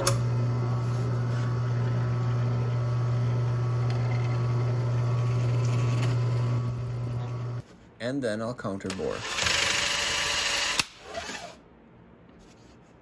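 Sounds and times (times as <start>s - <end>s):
drill press motor humming: 0.0s - 6.6s, 7.3s - 7.6s.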